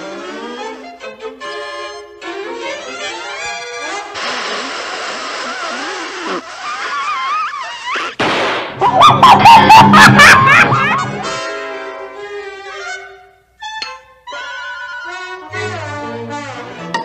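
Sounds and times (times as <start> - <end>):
wavering cartoon vocal cries: 5.7 - 8.2, 8.8 - 11.3
sudden bang: 8.2 - 11.2.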